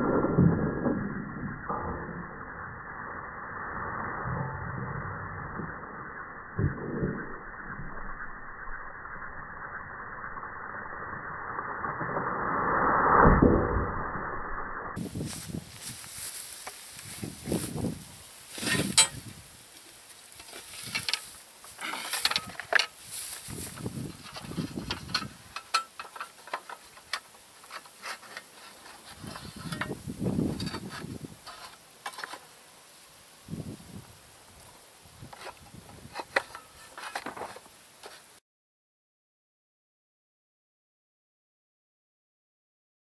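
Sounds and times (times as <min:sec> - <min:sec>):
metal plates clicking and scraping: 0:18.5 - 0:32.5, 0:35.3 - 0:38.3.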